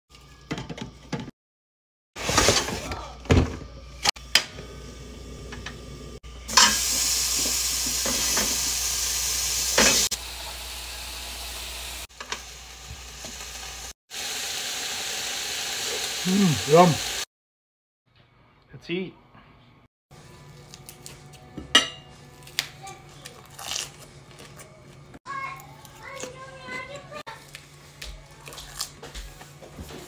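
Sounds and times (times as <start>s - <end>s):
pork sizzling on grill pan: 6.4s - 17.2s.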